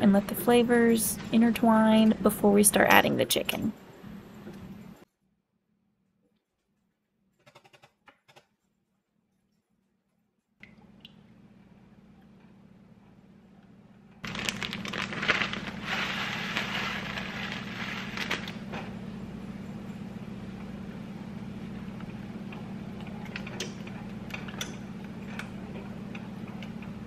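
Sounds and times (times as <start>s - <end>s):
coconut flakes rustling into pan: 14.2s - 18.6s.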